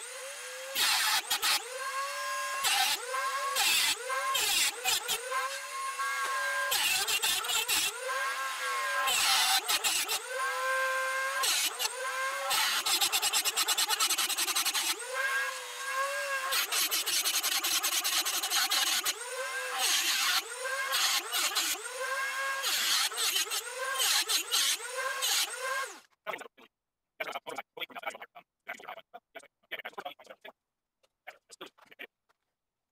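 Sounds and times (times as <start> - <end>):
rotary tool grinding metal: 0.0 - 26.1.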